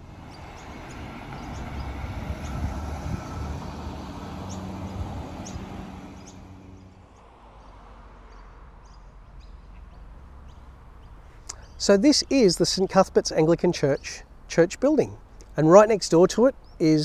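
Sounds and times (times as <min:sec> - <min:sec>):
car driving past: 0:00.0 - 0:08.8
birds chirping: 0:00.0 - 0:17.0.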